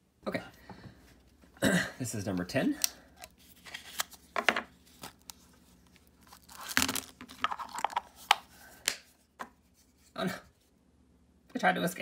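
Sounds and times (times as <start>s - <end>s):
paper crinkling: 3.3s - 8.5s
paper wrapper tearing: 3.4s - 8.0s.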